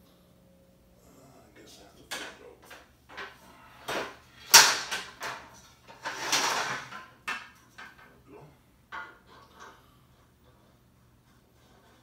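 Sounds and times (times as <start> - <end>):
bed frame parts knocking: 2.1 - 8.2, 8.9 - 9.9
scrape: 9.3 - 12.0.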